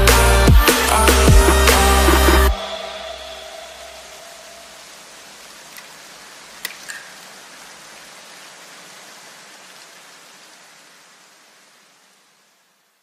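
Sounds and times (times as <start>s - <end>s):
steady hiss: 0.0s - 13.0s
sharp plastic clicks: 6.6s - 7.1s.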